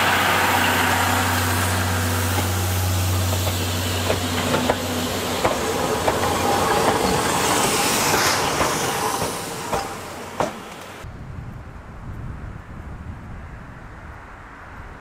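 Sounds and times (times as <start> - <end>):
steam hissing: 0.0 - 11.0.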